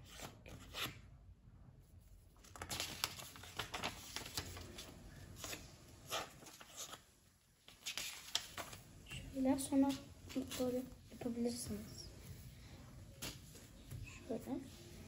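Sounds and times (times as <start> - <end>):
paper rustling and crinkling: 2.4 - 11.9.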